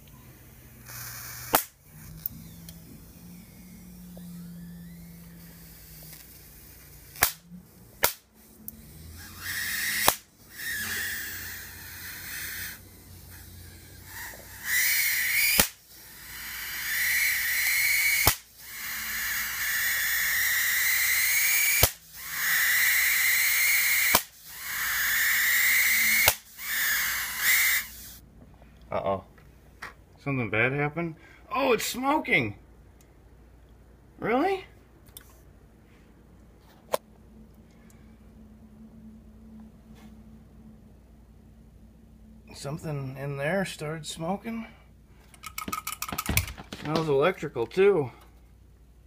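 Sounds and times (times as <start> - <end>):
electric arc buzzing hiss: 0.0 - 28.2
electric arc snaps: 0.8 - 2.8, 3.8 - 11.1, 14.2 - 15.9, 17.2 - 18.8, 20.0 - 24.5, 25.1 - 27.9.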